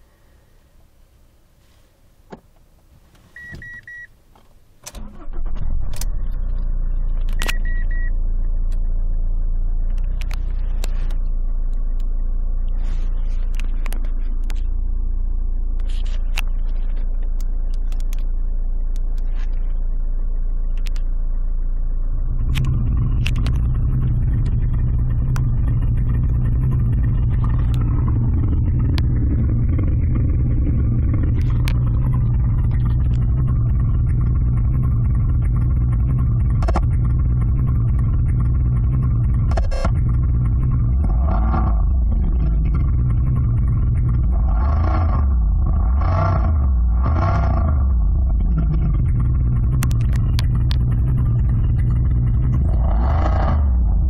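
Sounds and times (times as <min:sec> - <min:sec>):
simulated engine idling through speakers: 0:00.0 - 0:54.0
short beeps: 0:03.4 - 0:04.1, 0:06.4 - 0:13.1.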